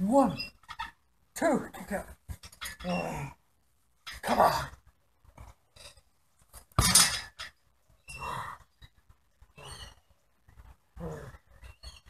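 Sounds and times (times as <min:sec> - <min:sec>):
grunts and cries of pain: 0:02.8 - 0:03.4, 0:11.0 - 0:11.5.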